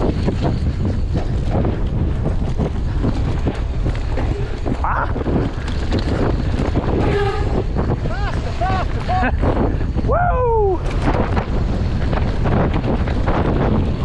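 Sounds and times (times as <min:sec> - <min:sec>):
bike rattling over rough ground: 0:00.0 - 0:14.0
wind buffeting microphone: 0:00.0 - 0:14.0
person shouting: 0:08.1 - 0:09.3, 0:10.1 - 0:10.8.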